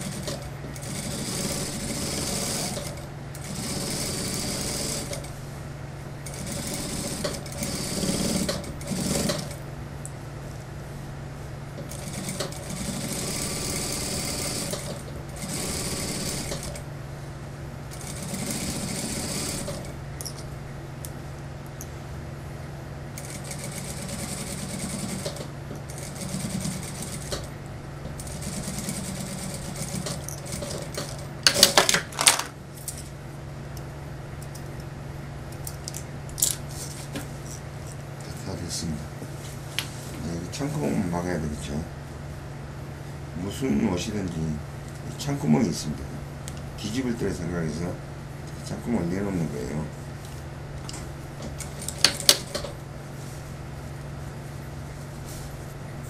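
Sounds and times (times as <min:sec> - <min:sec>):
sewing machine stitching: 0:00.0 - 0:05.2
steady low hum: 0:00.0 - 0:56.0.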